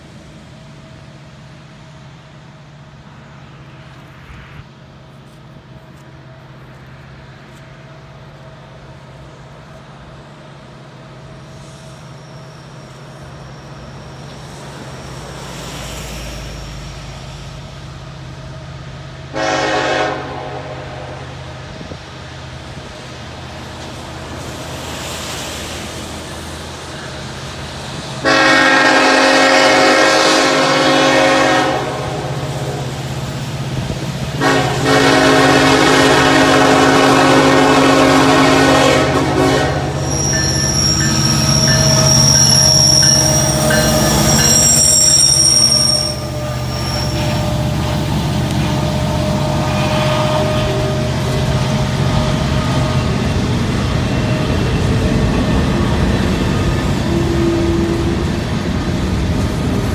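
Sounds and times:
diesel locomotive engines rumbling: 0.0s - 59.9s
train air horn blasts: 19.3s - 21.4s, 28.2s - 33.0s, 34.4s - 53.3s.

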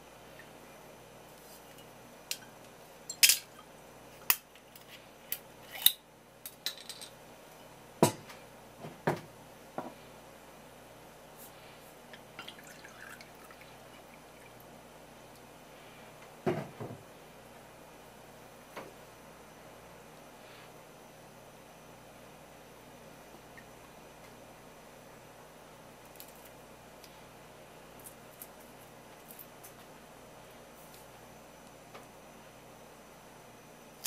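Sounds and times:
liquid pouring into cup: 12.4s - 14.6s.

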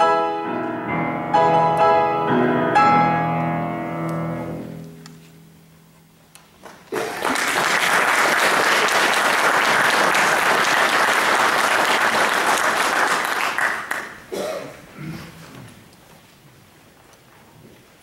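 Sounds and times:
audience applauding: 6.6s - 14.3s.

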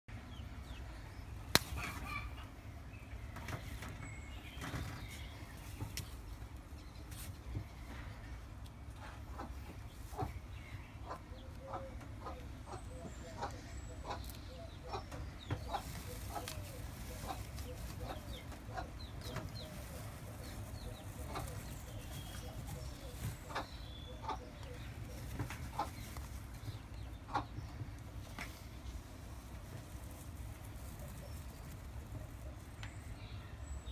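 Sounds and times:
steady low hum: 0.1s - 33.9s
hen clucking softly: 11.0s - 28.2s.

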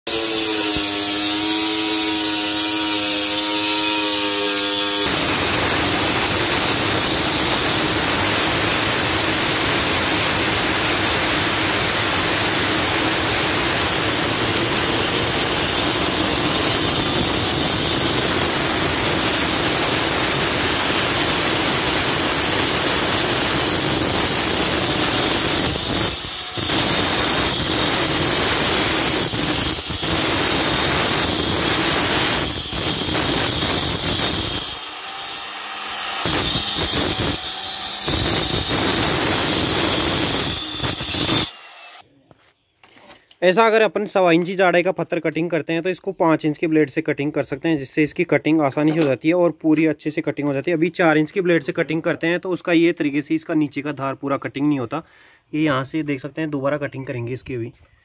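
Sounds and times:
stone cutter grinding: 0.1s - 42.0s.

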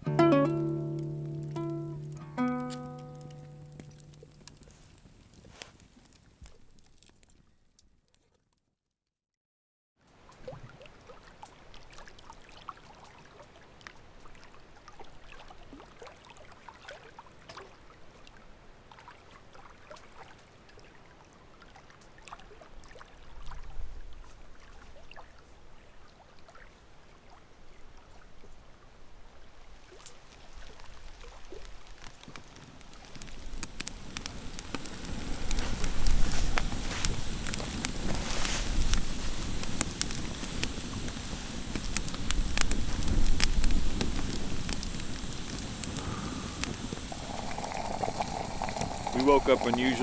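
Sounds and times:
water lapping at shore: 10.1s - 28.8s, 29.5s - 50.0s
small splashes and drips: 10.2s - 28.6s, 29.8s - 39.0s, 46.8s - 50.0s.

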